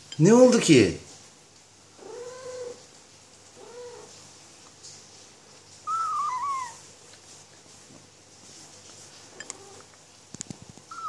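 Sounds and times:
kitten crying: 5.9s - 6.8s.

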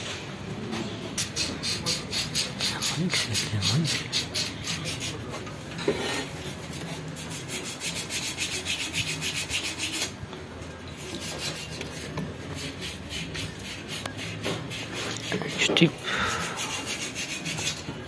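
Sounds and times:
fast rasping strokes: 1.2s - 5.2s, 7.2s - 10.1s, 11.0s - 17.9s.

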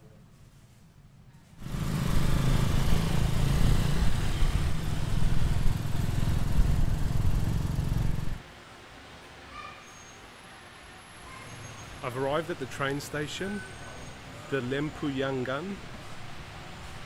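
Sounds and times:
rickshaw engine running rough: 1.6s - 8.4s
road noise: 1.6s - 8.6s, 10.8s - 17.0s.

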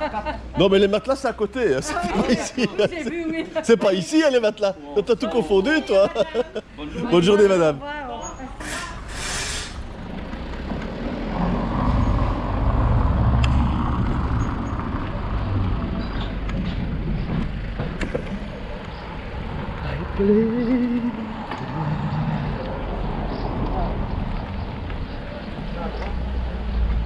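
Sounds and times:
bicycle tyres on brick paving: 8.6s - 13.0s
low rumble: 9.8s - 25.8s
sharp clicks: 13.4s - 13.8s.

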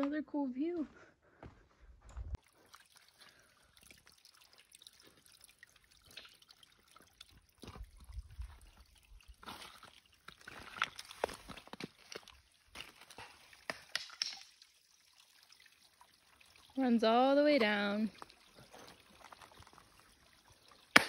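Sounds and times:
faint trickling water: 2.3s - 21.0s
water drips and splashes: 2.4s - 21.0s.

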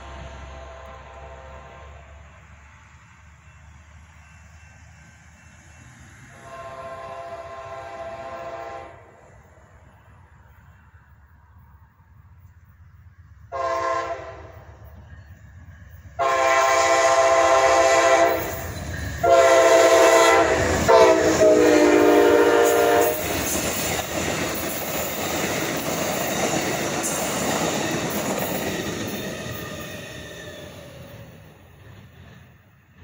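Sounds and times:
locomotive horn blasts: 0.0s - 2.3s, 6.3s - 9.1s, 13.5s - 14.8s, 16.2s - 23.4s
train wheels on rails: 0.0s - 33.0s.

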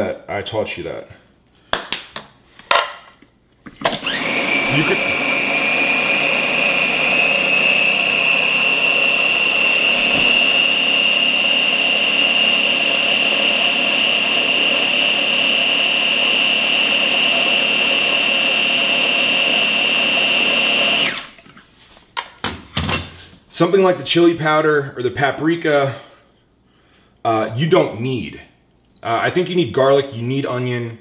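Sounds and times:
food chopper motor whine: 3.8s - 21.4s.

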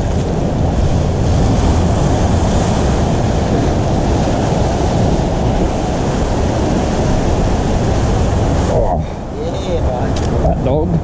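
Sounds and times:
ocean surf against rocks: 0.0s - 11.0s
wind buffeting microphone: 0.0s - 11.0s.

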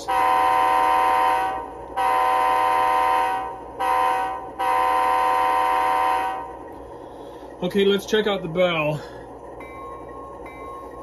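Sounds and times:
model train air horn: 0.0s - 6.6s.

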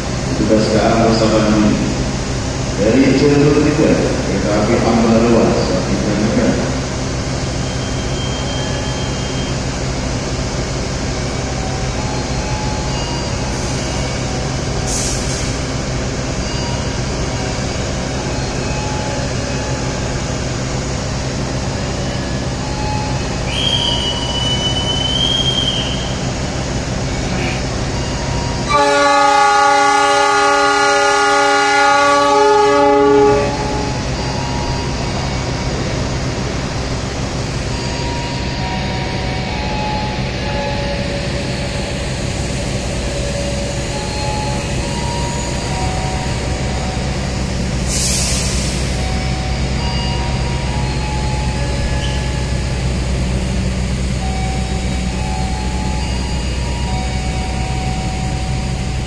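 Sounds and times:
diesel locomotive idling: 0.0s - 59.0s
high whistle: 23.0s - 26.2s
train horn blast: 28.7s - 34.0s.

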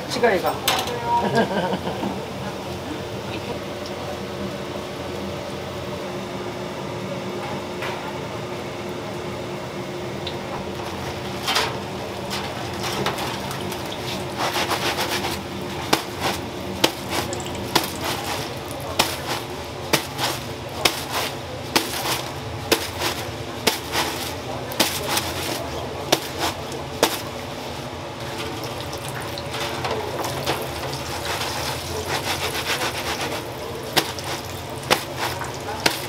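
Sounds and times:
wire strainer scraping and clattering: 10.8s - 27.4s, 29.1s - 36.0s
food sizzling in deep-fryer oil: 11.7s - 20.2s, 28.2s - 36.0s.

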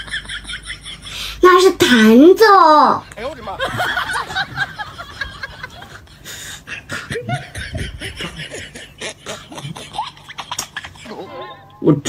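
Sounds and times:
stifled laughter: 3.6s - 11.8s.

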